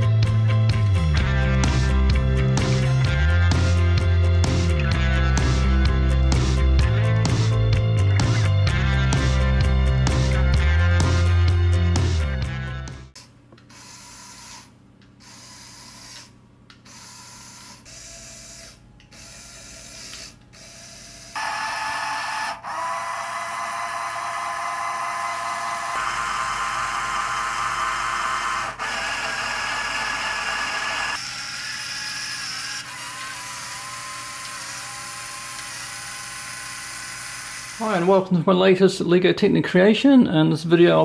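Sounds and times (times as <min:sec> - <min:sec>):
toy motor and gears whirring: 0:13.7 - 0:38.2.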